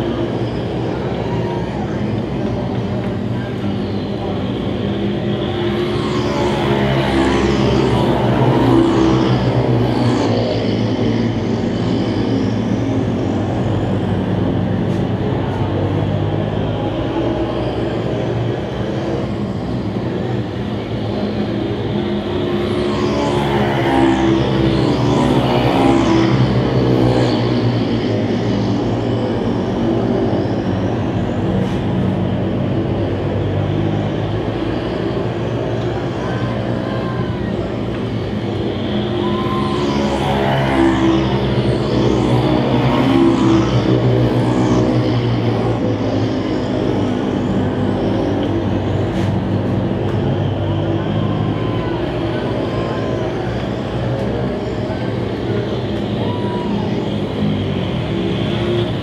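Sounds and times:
race car engines droning: 0.0 - 59.0.

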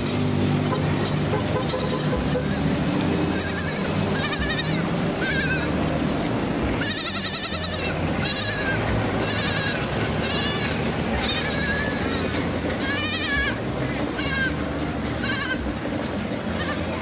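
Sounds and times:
high wavering animal bleats: 3.3 - 5.7, 6.8 - 13.6, 14.2 - 14.6.

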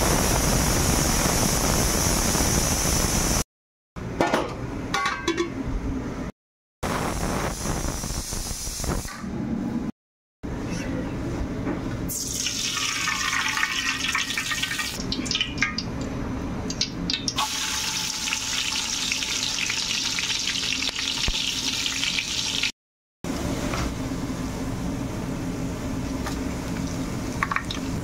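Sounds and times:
oil hissing in a pot: 0.0 - 3.4, 7.0 - 9.1, 17.4 - 22.7
onions sizzling in hot oil: 0.0 - 3.4, 17.4 - 22.7.

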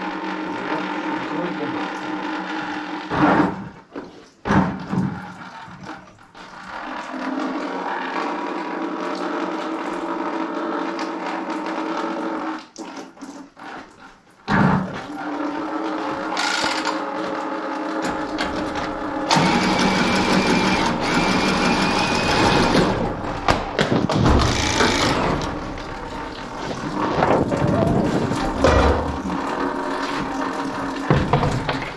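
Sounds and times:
small motor running: 16.0 - 17.3, 18.0 - 23.4, 24.2 - 31.1.

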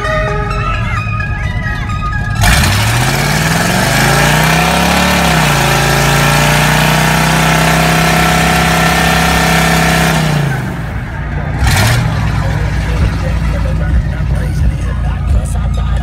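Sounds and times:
tire squealing on pavement: 0.0 - 13.8
engine revving hard: 2.4 - 14.1.

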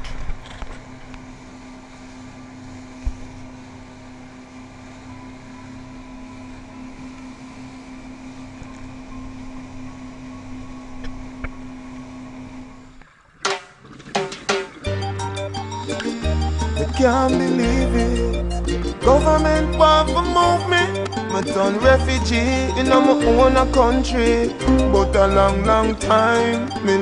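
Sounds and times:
motorboat engine running: 0.0 - 13.1, 14.7 - 27.0
water noise: 1.1 - 27.0
music: 14.8 - 27.0.

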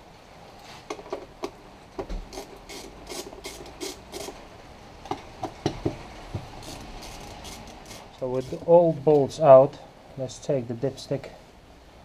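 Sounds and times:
ratchet clicking: 2.3 - 4.4, 6.6 - 8.6.

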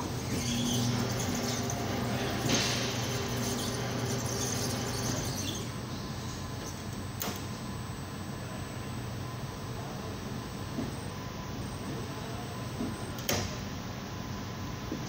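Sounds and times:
tire-changing machine humming: 0.0 - 6.9.

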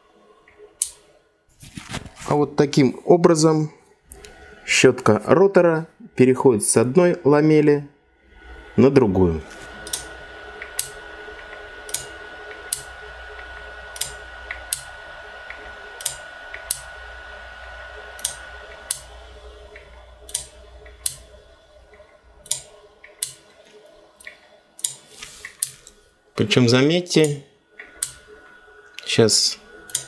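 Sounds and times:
stepping switch clicking: 0.8 - 1.0, 9.8 - 14.9, 15.5 - 16.9, 18.2 - 19.1, 19.7 - 21.3, 21.9 - 23.5, 24.2 - 26.0, 27.2 - 28.3.

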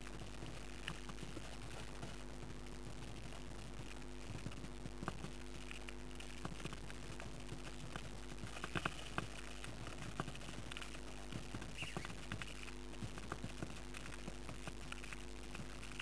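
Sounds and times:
claws and beak scratching: 0.0 - 16.0
electrical hum: 0.0 - 16.0
faint high chirps: 11.8 - 12.1.

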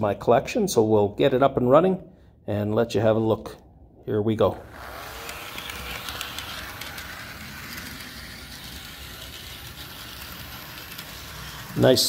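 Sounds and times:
small electric motor whirring: 4.6 - 12.0
wheels clicking on rails: 4.6 - 12.0.

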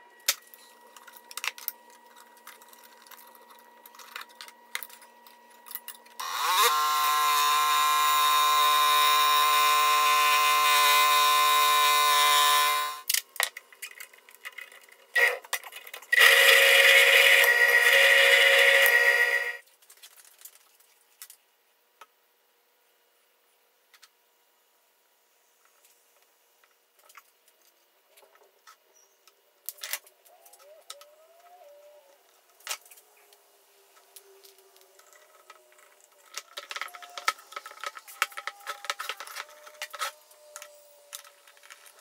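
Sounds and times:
drill press boring into wood: 6.2 - 13.0, 16.1 - 19.6
scroll saw cutting wood: 6.2 - 13.0, 15.2 - 15.4, 16.1 - 19.6.

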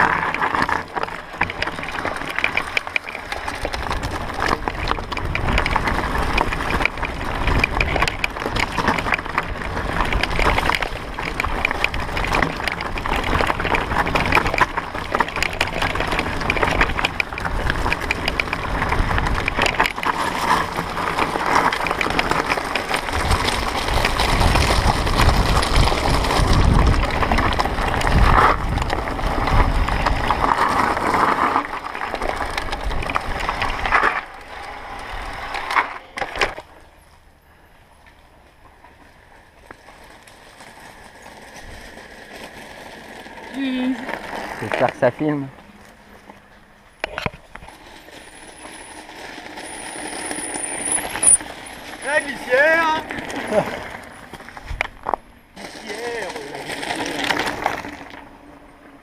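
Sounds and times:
bike rattling over bumps: 0.0 - 59.0
tyres on dirt: 0.0 - 59.0
wind on microphone: 23.2 - 30.5.

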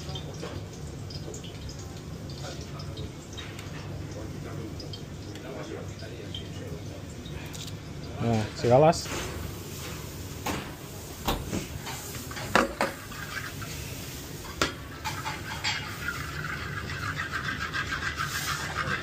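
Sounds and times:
metal spoon scraping a pan: 11.8 - 19.0.

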